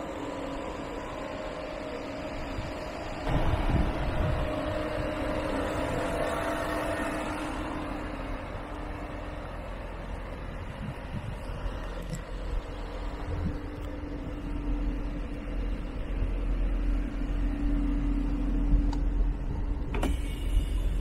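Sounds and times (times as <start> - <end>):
car engine idling: 0.0 - 21.0.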